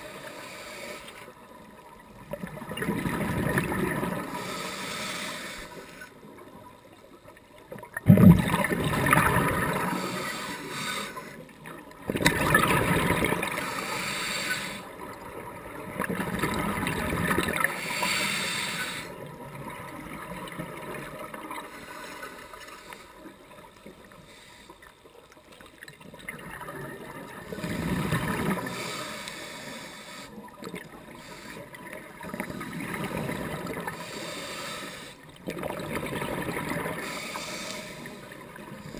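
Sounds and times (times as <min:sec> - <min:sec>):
underwater exhaled bubbles: 0:00.0 - 0:38.9
regulator hiss: 0:17.7 - 0:19.2, 0:34.0 - 0:35.2, 0:37.0 - 0:38.9.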